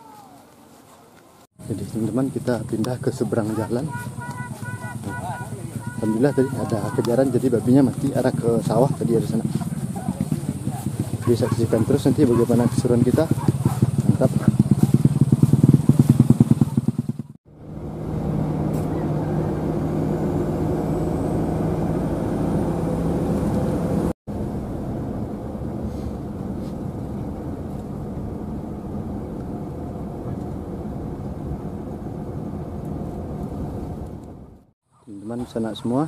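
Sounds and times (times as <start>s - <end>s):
motorcycle engine running: 1.6s - 25.4s.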